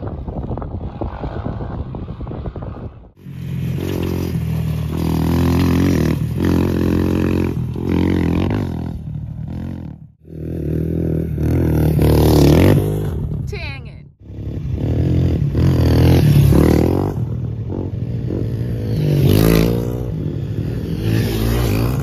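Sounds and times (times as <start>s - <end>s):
wind buffeting microphone: 0.0s - 3.2s
dirt bike engine revving: 3.2s - 13.6s, 14.2s - 22.0s.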